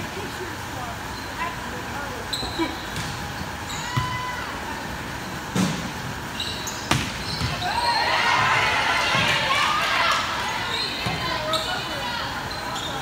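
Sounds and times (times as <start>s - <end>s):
voices of players and spectators: 0.0s - 13.0s
sneaker squeaks: 1.0s - 9.4s, 10.1s - 13.0s
volleyball hits: 2.8s - 4.4s, 5.4s - 11.8s.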